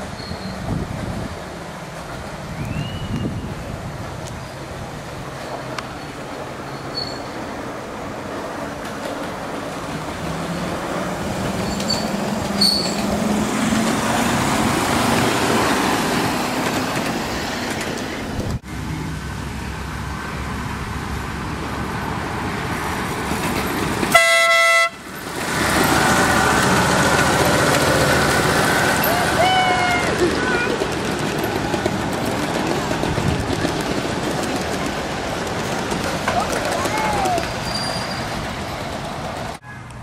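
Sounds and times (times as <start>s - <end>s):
wheels rumbling on rail: 0.0s - 40.0s
locomotive horn toot: 24.1s - 25.1s.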